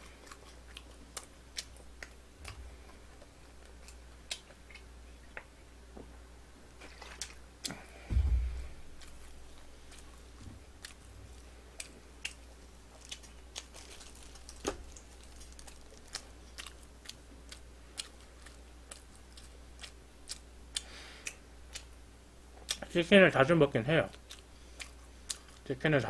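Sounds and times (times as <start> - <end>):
chewing crunchy fried chicken: 0.0 - 5.6, 8.9 - 23.0, 24.0 - 26.0.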